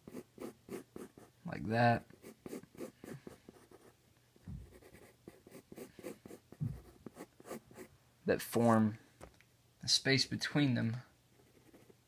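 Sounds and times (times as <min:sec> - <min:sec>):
pencil scratching on paper: 0:00.0 - 0:01.4, 0:02.0 - 0:04.0, 0:04.6 - 0:07.9, 0:11.4 - 0:12.0
soft low thuds: 0:04.4 - 0:04.8, 0:06.6 - 0:07.0.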